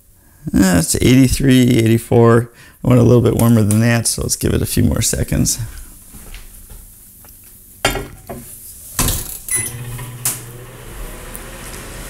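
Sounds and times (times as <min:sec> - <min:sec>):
microwave humming: 0:09.0 - 0:12.0.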